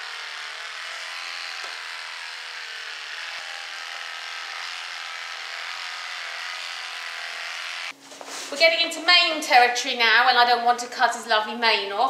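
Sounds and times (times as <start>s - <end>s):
electric clippers buzzing: 0.0s - 8.0s.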